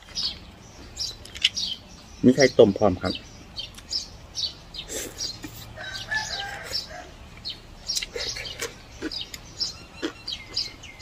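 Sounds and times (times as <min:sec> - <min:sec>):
small birds chirping: 0:00.0 - 0:11.0
chicken calling: 0:04.8 - 0:11.0.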